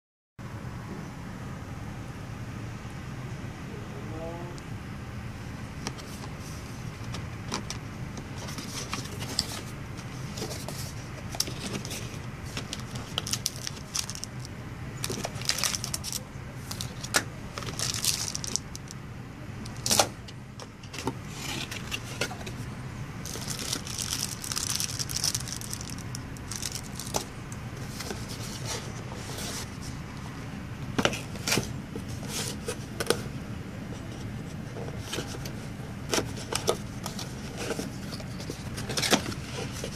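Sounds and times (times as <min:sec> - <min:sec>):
cardboard packaging rustling: 0:06.0 - 0:19.0, 0:20.8 - 0:30.0, 0:34.9 - 0:39.9.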